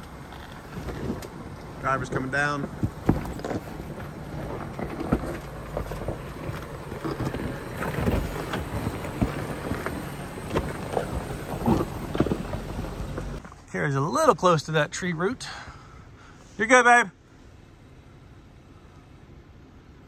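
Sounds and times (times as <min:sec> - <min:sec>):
low engine rumble: 0:00.0 - 0:20.0
tyres knocking and scraping rock: 0:00.1 - 0:13.8.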